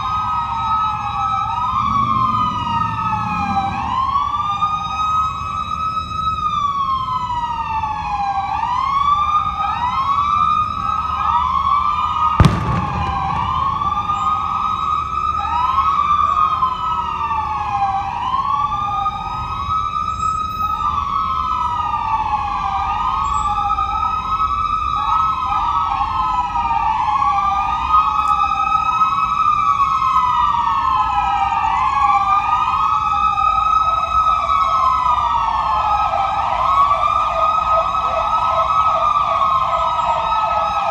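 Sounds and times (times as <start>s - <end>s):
police sirens wailing: 0.0s - 40.9s
sharp thump: 12.4s - 14.7s.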